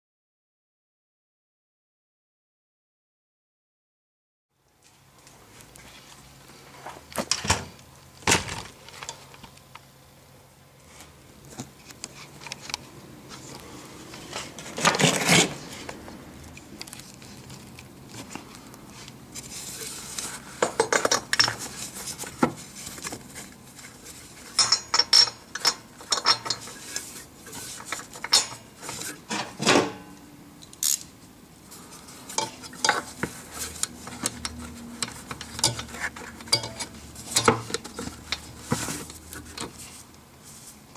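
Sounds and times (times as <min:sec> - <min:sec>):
scraping or rustling: 0:13.3 - 0:16.0, 0:31.7 - 0:40.9
tools and parts clinking: 0:20.6 - 0:22.4, 0:24.4 - 0:31.1, 0:32.3 - 0:39.7.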